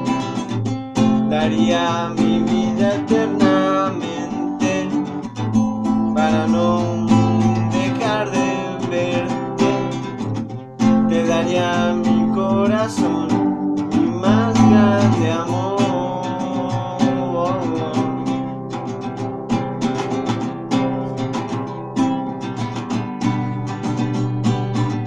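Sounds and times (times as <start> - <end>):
acoustic guitar strumming: 0.0 - 25.0
man singing: 1.0 - 18.8.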